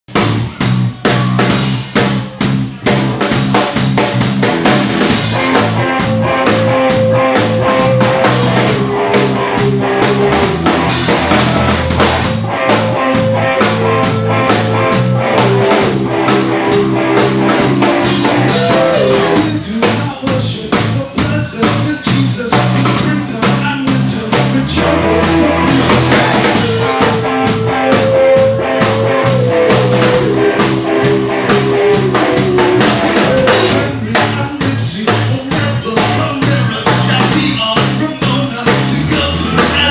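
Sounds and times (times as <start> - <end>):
drum kit beats: 0.1 - 39.9
held guitar notes: 5.1 - 19.5, 24.7 - 34.1.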